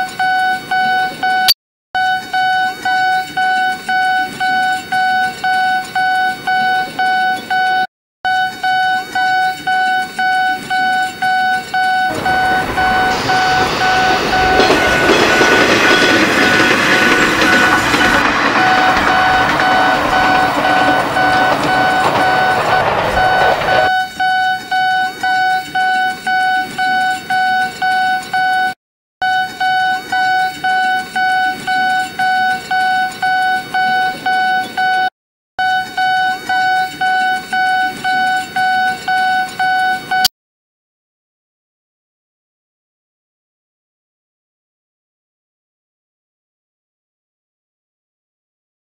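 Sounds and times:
crossing signal warning beeps: 0.1 - 40.3
approaching train: 12.1 - 24.0.

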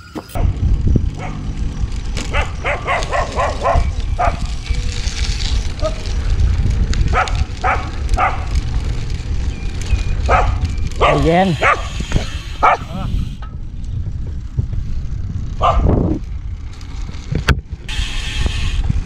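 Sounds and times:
wind rumble on microphone: 0.0 - 19.0
dog barking: 2.3 - 4.4, 7.1 - 8.4, 10.3 - 12.0, 12.6 - 13.0, 15.6 - 15.9.

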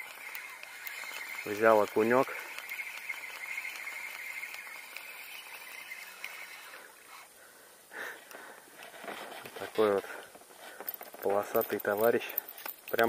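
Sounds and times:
fishing reel whirring: 0.0 - 7.3.

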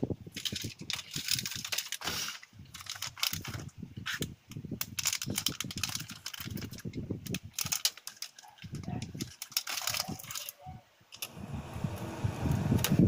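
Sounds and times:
foil pouch crinkling: 0.3 - 3.8, 4.8 - 10.6.

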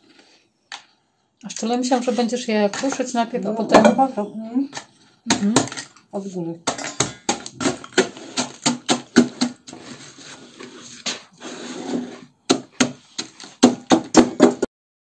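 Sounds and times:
masher pounding in a saucepan: 6.6 - 9.7, 12.5 - 14.7
biscuits grinding: 6.7 - 14.6.

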